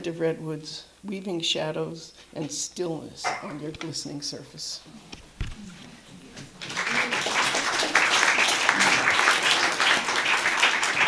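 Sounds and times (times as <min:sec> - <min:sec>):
audience applauding: 0:06.6 - 0:11.0.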